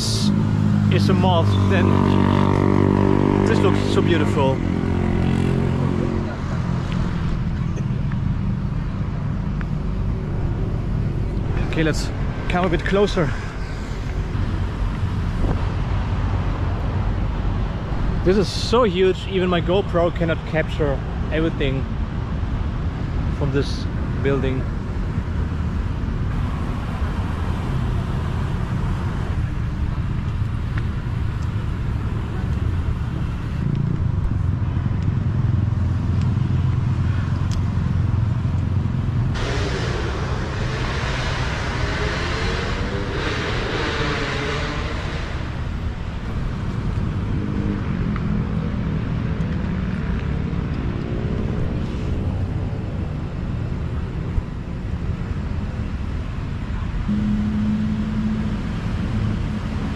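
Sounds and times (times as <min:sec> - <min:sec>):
vehicle passing with hiss: 0:00.0 - 0:07.6, 0:38.7 - 0:54.2
low rumble of road traffic: 0:00.0 - 0:59.9.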